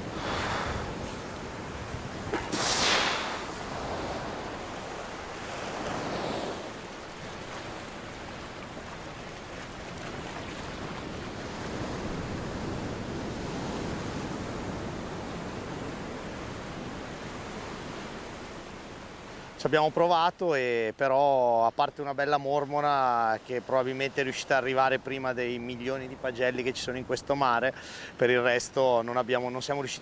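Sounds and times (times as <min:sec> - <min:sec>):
surf washing up pebble beach: 0:00.0 - 0:14.2.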